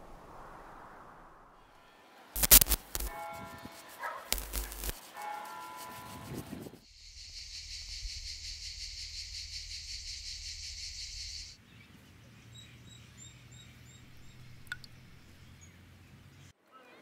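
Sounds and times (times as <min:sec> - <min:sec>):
low rumble: 0:00.0 - 0:01.8
sharp click: 0:02.4 - 0:03.2, 0:04.3 - 0:05.0
high insect chorus: 0:02.4 - 0:06.1, 0:06.8 - 0:11.6
small bird chirps: 0:06.9 - 0:15.8.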